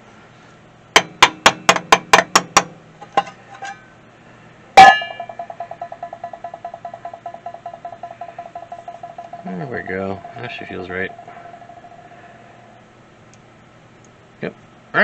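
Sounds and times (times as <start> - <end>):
hammer striking metal: 1.0 - 3.4, 4.8 - 12.2.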